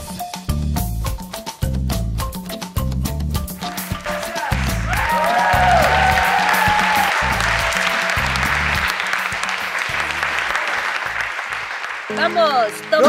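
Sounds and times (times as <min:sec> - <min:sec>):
upbeat dance music: 0:03.5 - 0:09.6
group clapping along: 0:03.5 - 0:13.0.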